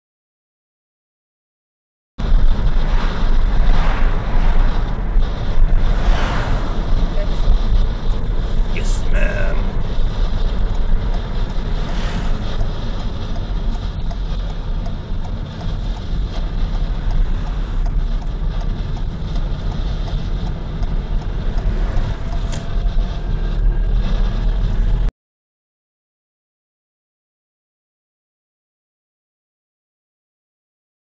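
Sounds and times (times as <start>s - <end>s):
car engine and tyre rumble: 2.2s - 25.1s.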